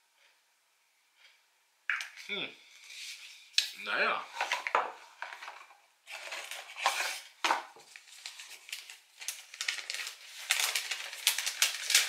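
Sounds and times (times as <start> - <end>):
paper leaflet rustling: 4.3 - 12.0.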